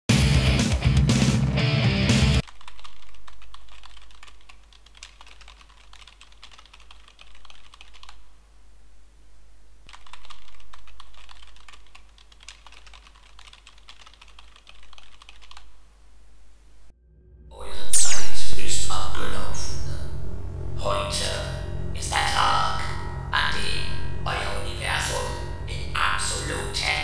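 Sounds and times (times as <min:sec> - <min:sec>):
computer keyboard typing: 0:02.4 - 0:08.2, 0:09.9 - 0:15.8.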